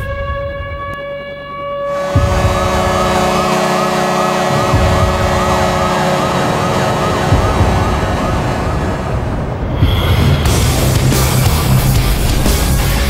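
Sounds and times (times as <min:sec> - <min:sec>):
goal horn blasting: 0:00.0 - 0:09.6
wailing siren: 0:00.0 - 0:09.9
heavy music beat: 0:01.9 - 0:13.0.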